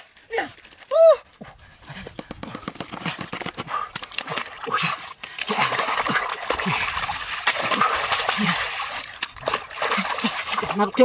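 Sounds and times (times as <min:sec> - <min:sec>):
water sloshing: 0:01.4 - 0:11.0
hands squelching in mud: 0:02.9 - 0:11.0.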